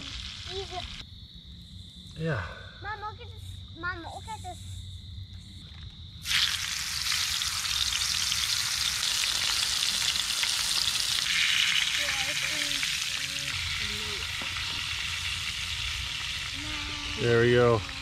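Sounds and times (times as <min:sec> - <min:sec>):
fish sizzling in hot oil: 0:00.0 - 0:01.0, 0:06.2 - 0:18.0.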